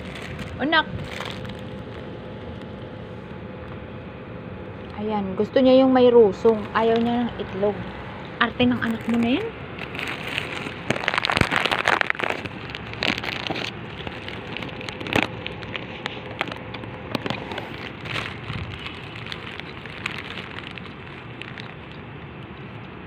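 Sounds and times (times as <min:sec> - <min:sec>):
crackling clicks: 0:08.8 - 0:23.0.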